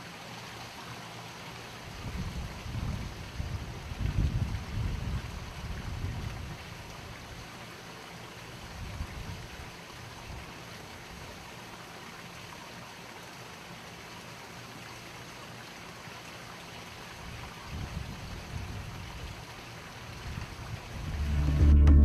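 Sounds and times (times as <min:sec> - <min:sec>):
steady outdoor hiss: 0:00.0 - 0:22.0
wind rumble on microphone: 0:01.9 - 0:06.6, 0:08.8 - 0:09.6, 0:17.7 - 0:19.3, 0:20.1 - 0:22.0.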